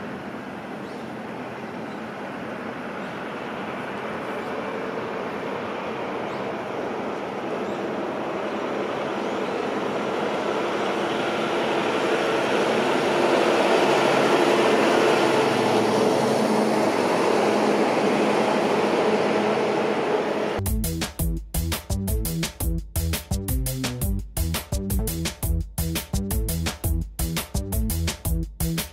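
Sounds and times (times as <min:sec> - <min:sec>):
passing vehicles rushing: 0:00.0 - 0:20.6.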